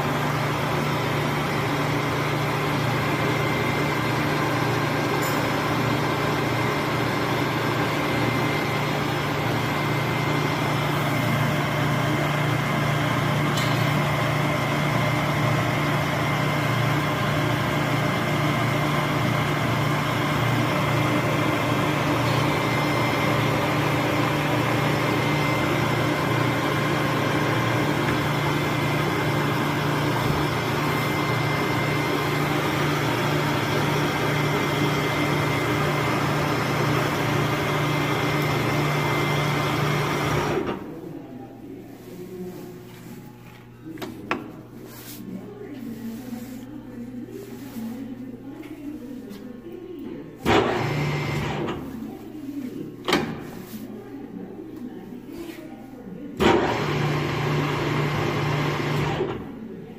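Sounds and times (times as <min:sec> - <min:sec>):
lathe motor hum: 0:00.0 - 0:40.9.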